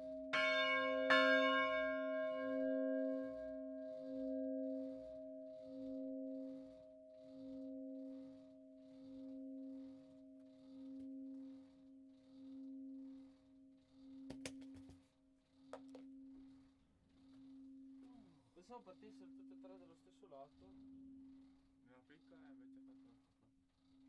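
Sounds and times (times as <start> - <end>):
bronze bell humming: 0.0 - 14.4, 15.6 - 23.2.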